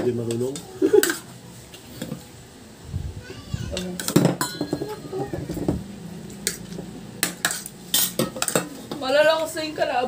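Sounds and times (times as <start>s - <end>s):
cutlery clinking on plates: 3.8s - 5.7s, 6.4s - 9.0s.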